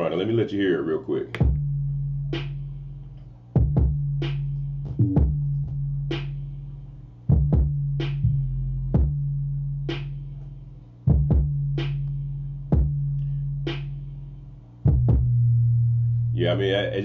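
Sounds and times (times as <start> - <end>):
kick drum: 1.4 - 1.7, 3.6 - 4.3, 5.0 - 5.5, 7.3 - 8.3, 8.9 - 9.2, 11.1 - 11.8, 12.7 - 13.0, 14.9 - 15.4
long bass notes: 1.4 - 17.0.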